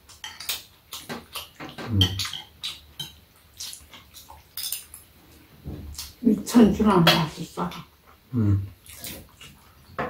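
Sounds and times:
people chewing and lip-smacking: 0.0 - 5.1
low vocal hum: 8.3 - 8.7.

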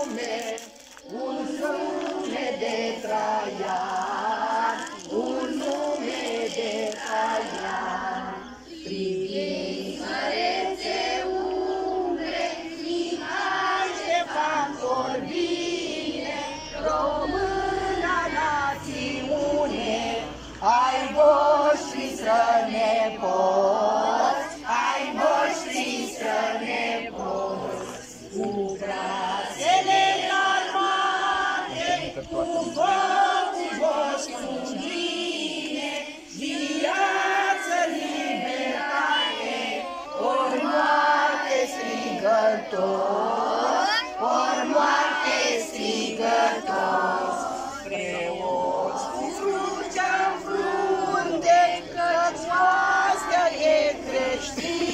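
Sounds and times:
children and adults singing together: 0.0 - 54.9.

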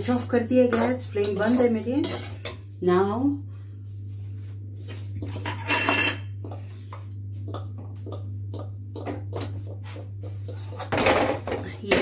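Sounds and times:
metal spoon scraping pan: 0.0 - 2.7
steady low hum: 0.0 - 12.0.

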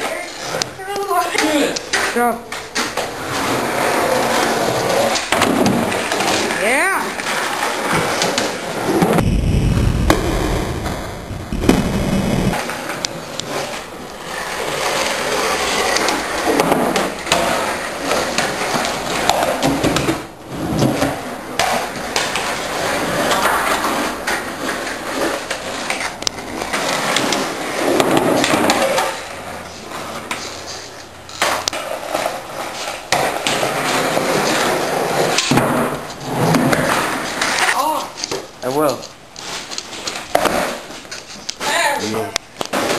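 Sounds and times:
skateboard wheels rolling on concrete: 0.0 - 42.9
skateboard clacking on ground: 12.6 - 39.2, 39.8 - 42.9.

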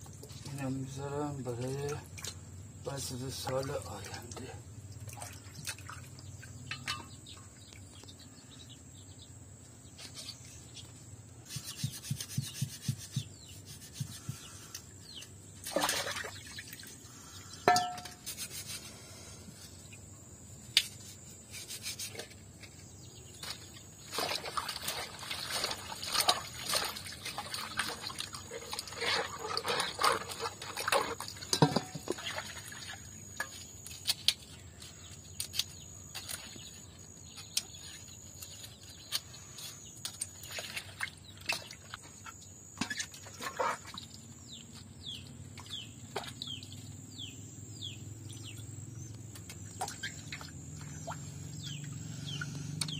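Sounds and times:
water splashing: 5.0 - 7.0, 15.6 - 17.0, 24.1 - 33.5
knocks against metal colander: 17.7 - 18.1.

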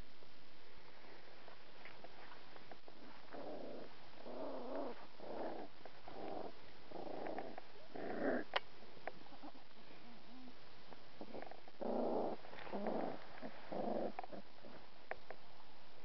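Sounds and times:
puppies growling: 2.9 - 8.6, 11.2 - 14.9.

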